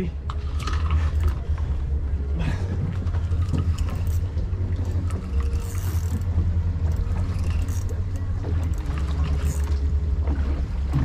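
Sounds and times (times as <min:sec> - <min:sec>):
steady low rumble: 0:00.0 - 0:11.0
fishing reel clicks and rattles: 0:00.3 - 0:01.4, 0:03.3 - 0:09.9.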